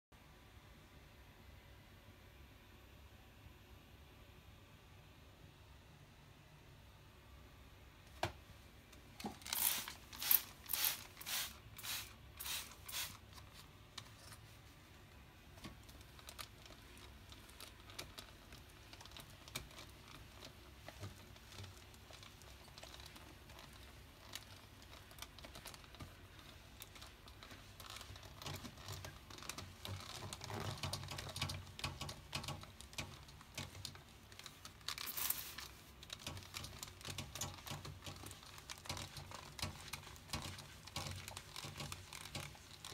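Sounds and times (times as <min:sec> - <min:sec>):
spray bottle hisses: 0:09.5 - 0:13.2.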